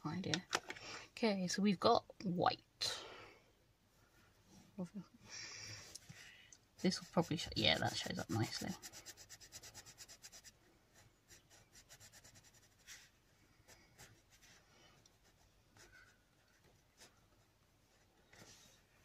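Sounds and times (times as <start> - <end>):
pencil scratching on paper: 6.8 - 14.6, 15.2 - 17.1.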